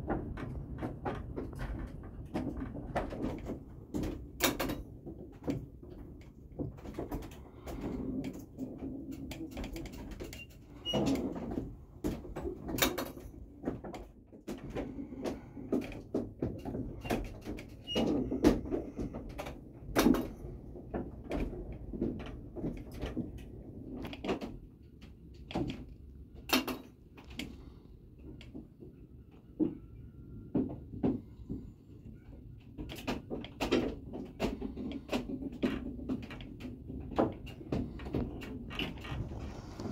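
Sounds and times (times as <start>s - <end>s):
wooden windmill gears knocking and creaking: 0.0s - 39.9s.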